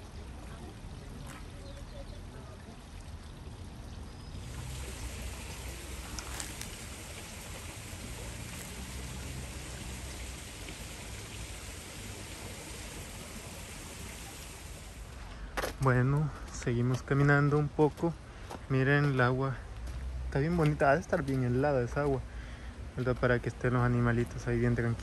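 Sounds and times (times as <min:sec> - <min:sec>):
stream water rushing: 0:02.3 - 0:15.4.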